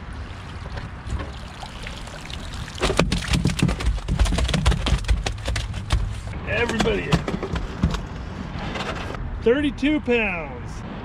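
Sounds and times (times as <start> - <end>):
water sloshing and dripping: 0.0 - 5.5
fish flopping and slapping on mat: 2.8 - 6.2.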